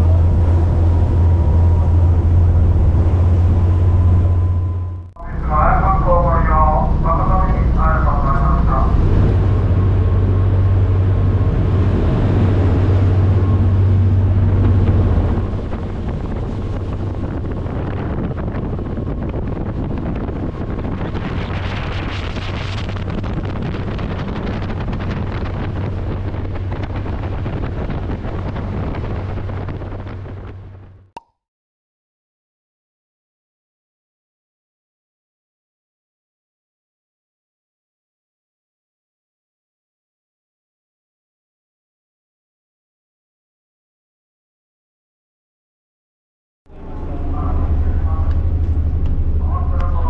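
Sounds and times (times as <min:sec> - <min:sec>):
water rushing in wake: 0:00.0 - 0:30.8
wind on microphone: 0:00.0 - 0:31.0
low engine drone: 0:00.0 - 0:31.1, 0:46.7 - 0:50.0.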